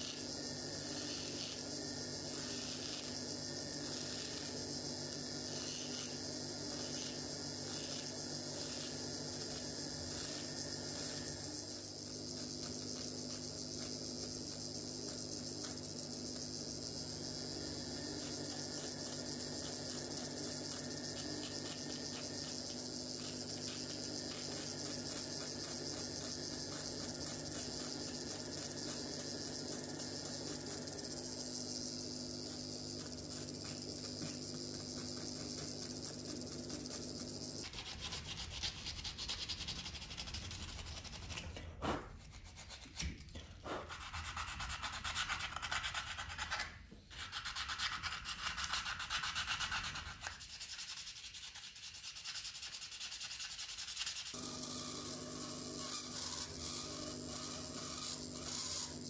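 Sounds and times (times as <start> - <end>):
rotary tool grinding wood: 0.0 - 41.4, 53.2 - 59.0
hand sanding wood: 43.7 - 54.9.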